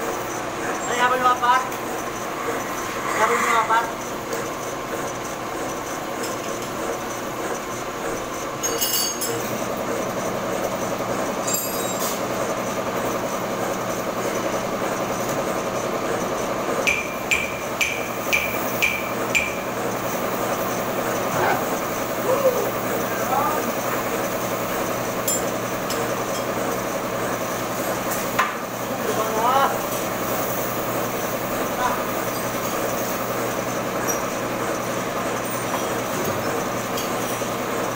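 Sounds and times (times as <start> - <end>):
metal lathe droning: 0.0 - 37.9
sharp ringing metallic ticks: 16.4 - 20.0.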